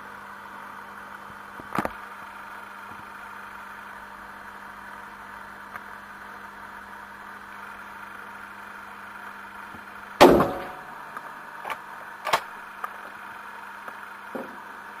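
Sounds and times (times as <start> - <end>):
steady hum: 0.0 - 15.0
rifle shot: 10.2 - 10.8.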